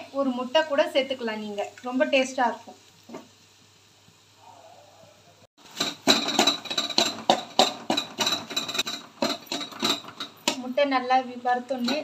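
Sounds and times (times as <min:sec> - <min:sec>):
metal spatula scraping a pan: 0:05.6 - 0:10.6.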